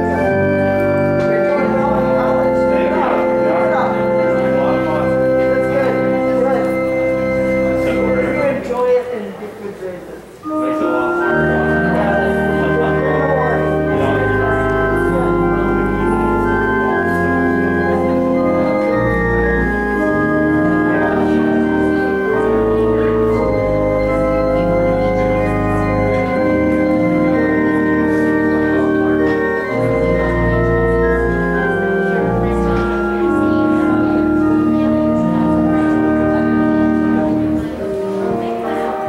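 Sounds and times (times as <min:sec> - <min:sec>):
church organ playing chords: 0:00.0 - 0:09.2, 0:10.2 - 0:39.0.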